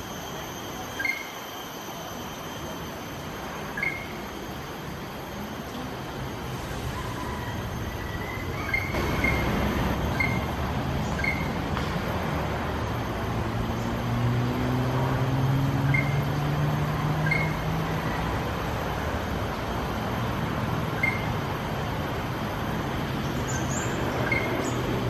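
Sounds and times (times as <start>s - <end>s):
steady traffic noise: 0.0s - 25.0s
vehicle engine drone: 0.0s - 25.0s
bird whistled notes: 0.9s - 1.4s, 3.7s - 4.3s, 6.8s - 11.6s, 15.9s - 16.2s, 17.2s - 17.6s, 21.0s - 21.3s, 23.5s - 24.8s.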